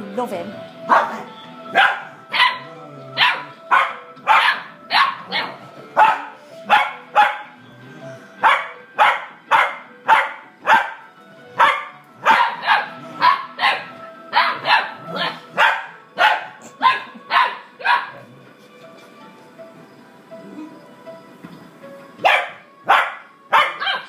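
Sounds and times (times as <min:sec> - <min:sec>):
dog barking: 0:00.9 - 0:07.5, 0:08.4 - 0:11.0, 0:11.6 - 0:18.3, 0:22.2 - 0:24.0.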